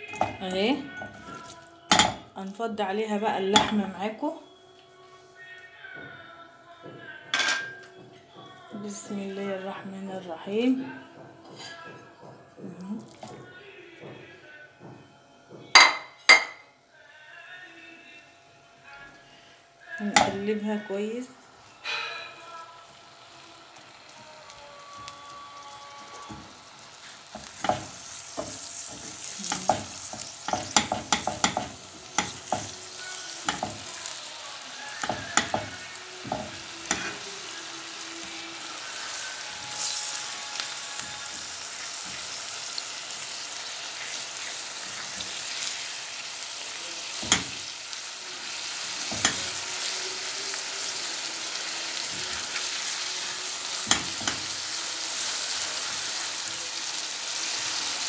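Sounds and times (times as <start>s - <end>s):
meat sizzling in a frying pan: 21.6s - 58.0s
spatula tapping and scraping pan: 27.3s - 32.8s, 33.4s - 34.0s, 35.0s - 37.3s, 47.2s - 47.7s, 49.1s - 49.6s, 53.8s - 54.5s.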